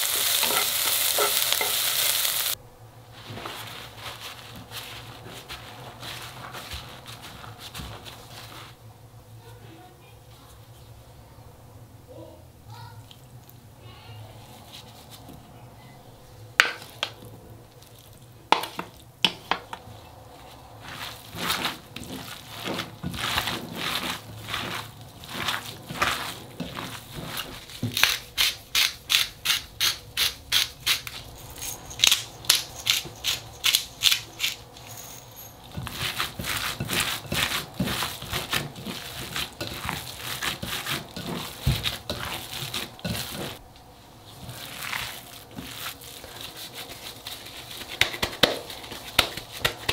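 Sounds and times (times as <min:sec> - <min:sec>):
rubbing and mashing: 0:00.0 - 0:02.2, 0:03.0 - 0:09.6, 0:16.6 - 0:49.9
wet squelching of kneaded meat: 0:03.1 - 0:08.9, 0:16.8 - 0:19.2, 0:19.8 - 0:28.7, 0:35.6 - 0:49.9.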